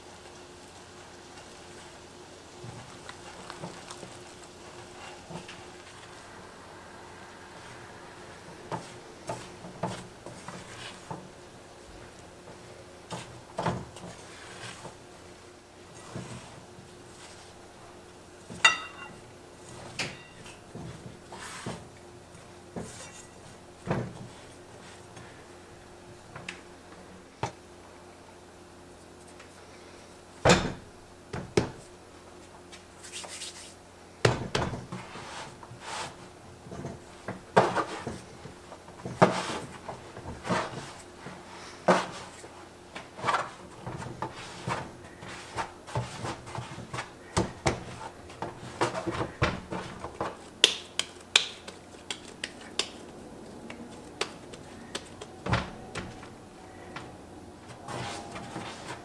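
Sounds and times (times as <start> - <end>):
dough thumping on surface: 18.5 - 19.2, 30.4 - 31.8, 34.2 - 35.0, 45.6 - 53.0.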